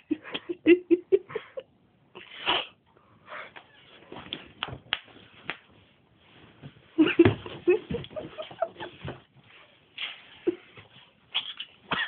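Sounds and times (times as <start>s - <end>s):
knocks and rustles of movement: 3.5s - 12.0s.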